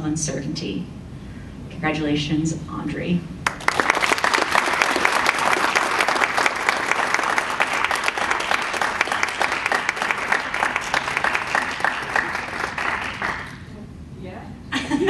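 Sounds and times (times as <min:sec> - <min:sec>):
audience applauding: 0:03.4 - 0:13.7.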